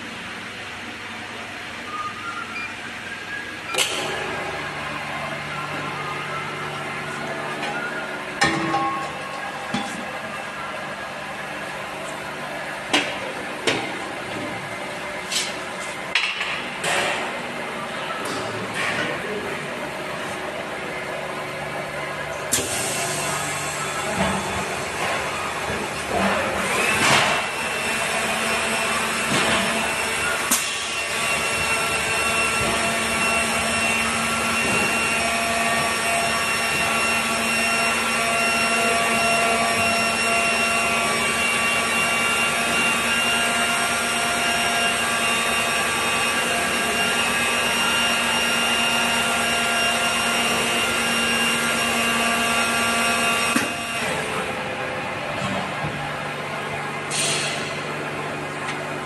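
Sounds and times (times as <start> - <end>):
filling machine whining: 21.6 - 54.8.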